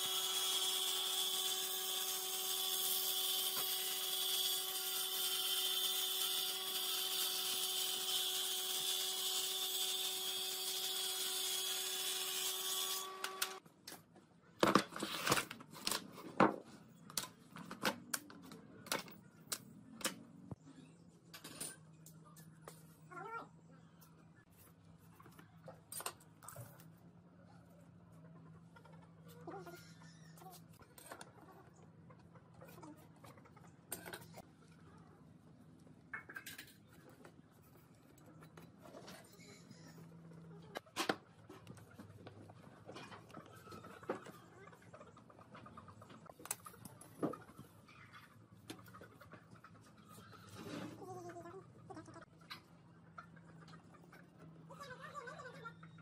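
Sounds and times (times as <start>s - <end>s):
table saw whining: 0.0s - 13.6s.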